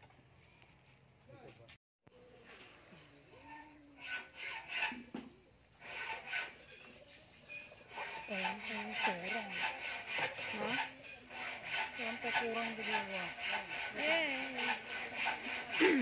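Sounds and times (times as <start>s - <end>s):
brush rasping through wet hair: 5.8s - 16.0s.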